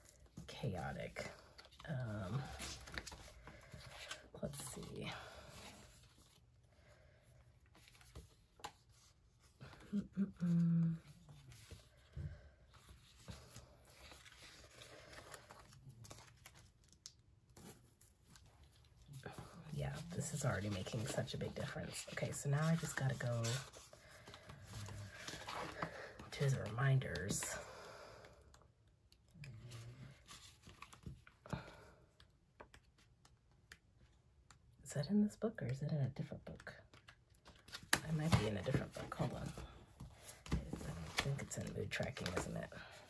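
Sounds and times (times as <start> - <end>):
pages being turned: 1.5 - 6.4, 13.0 - 27.4, 30.2 - 31.3, 40.2 - 42.5.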